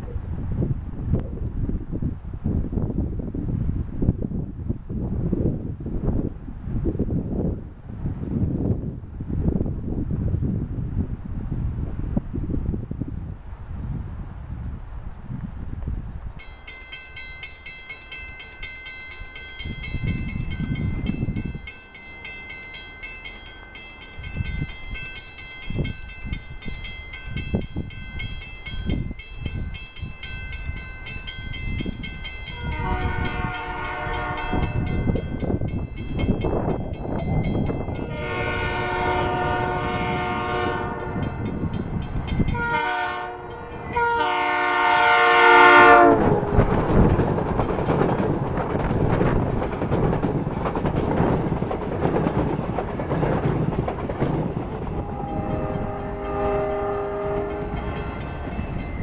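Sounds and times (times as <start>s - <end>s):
train passing loudly: 16.2s - 59.0s
crossing bell ringing: 16.4s - 48.4s, 54.5s - 59.0s
train horn blasts: 32.5s - 35.2s, 37.9s - 41.7s, 42.5s - 46.9s, 54.9s - 58.6s.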